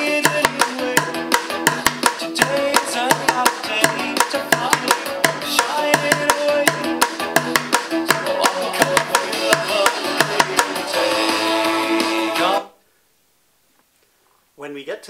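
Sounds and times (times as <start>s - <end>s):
pop song with synths and singing: 0.0s - 12.8s
drumsticks hitting plastic bucket: 0.2s - 10.8s.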